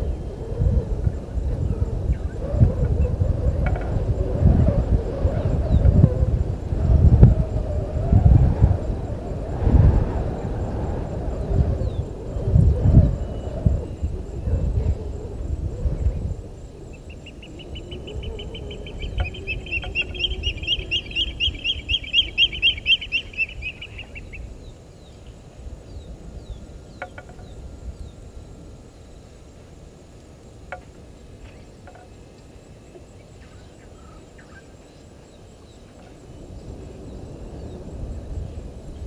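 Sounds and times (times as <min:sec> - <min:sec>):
bird harsh repeated calls: 0:17.2 - 0:24.4.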